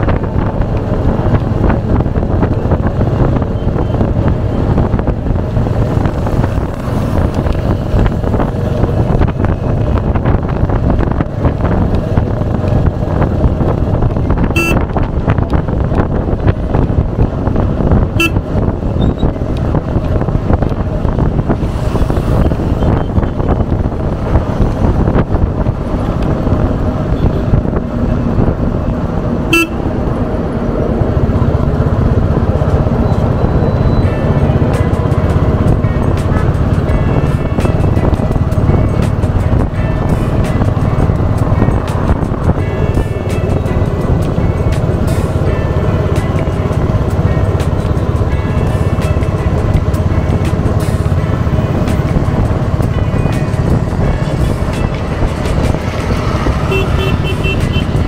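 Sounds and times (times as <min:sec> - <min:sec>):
motorcycle engine running: 0:00.0 - 0:58.0
horn beeps: 0:14.5 - 0:14.9, 0:18.2 - 0:19.3, 0:29.4 - 0:29.9, 0:32.9 - 0:34.5, 0:56.6 - 0:58.0.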